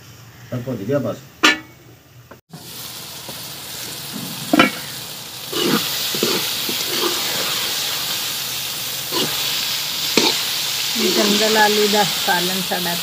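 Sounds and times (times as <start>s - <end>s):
curry sizzling in a pan: 2.5s - 13.0s
metal ladle scraping a pan: 4.5s - 4.9s, 5.5s - 7.9s, 9.1s - 11.4s.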